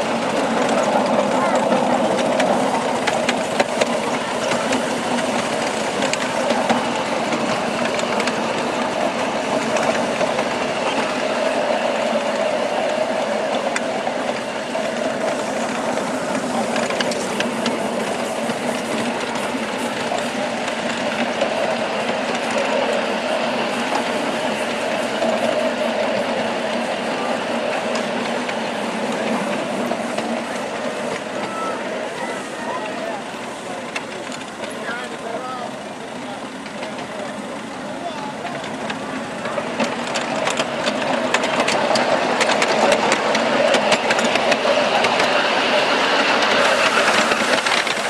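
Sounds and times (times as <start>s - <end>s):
miniature train clattering: 0.0s - 48.0s.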